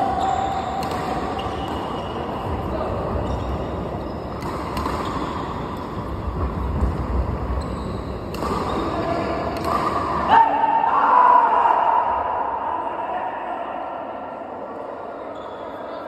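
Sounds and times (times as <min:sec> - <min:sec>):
rackets hitting a shuttlecock: 0:00.7 - 0:02.6, 0:04.3 - 0:07.1, 0:08.2 - 0:10.3.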